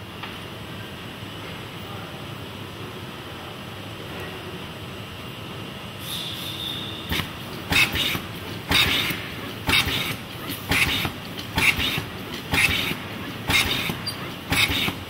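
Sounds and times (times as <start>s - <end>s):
conveyor machinery running: 0.0s - 15.0s
robot pneumatic hiss bursts: 6.0s - 15.0s.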